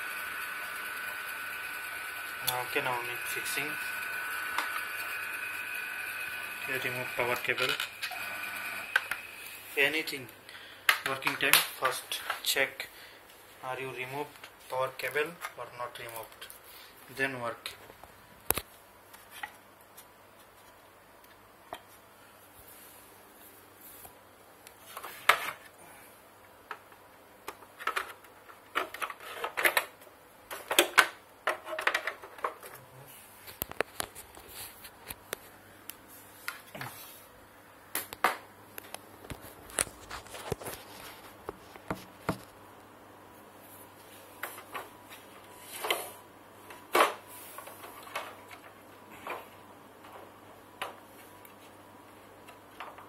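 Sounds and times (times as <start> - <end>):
plastic parts clicking and knocking: 26.7 - 32.8.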